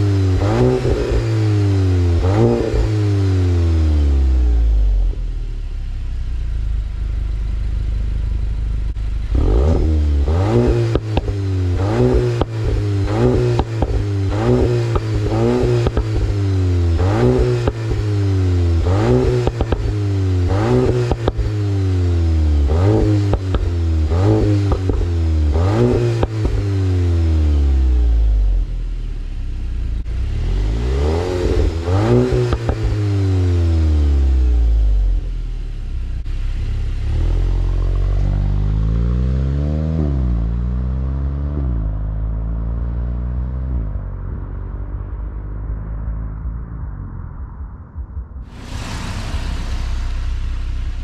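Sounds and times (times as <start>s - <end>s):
car engine revving: 0.0s - 51.0s
car accelerating through gear shifts: 9.2s - 28.1s, 30.0s - 34.5s, 37.0s - 46.6s.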